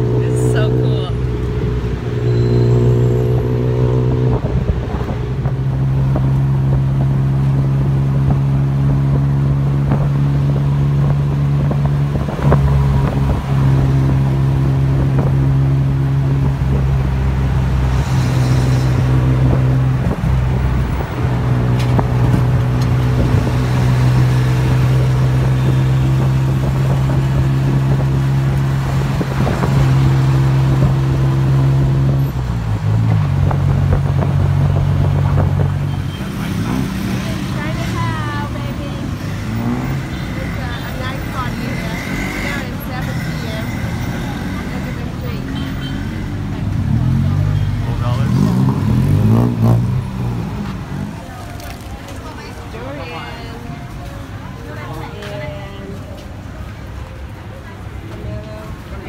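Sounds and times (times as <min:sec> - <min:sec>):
road noise: 0:00.0 - 0:59.0.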